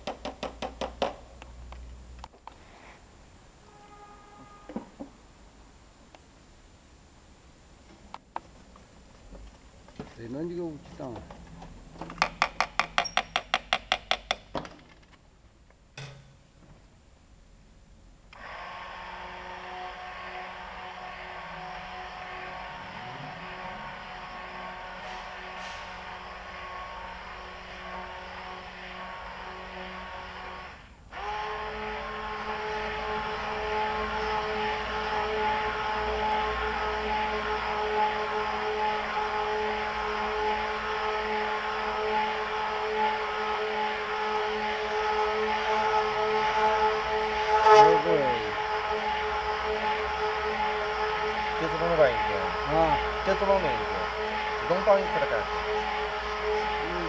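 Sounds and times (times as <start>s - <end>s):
homogenizer motor whining: 18.3s - 57.0s
immersion mixer running: 18.4s - 57.0s
rushing hiss of mixing: 18.4s - 57.0s.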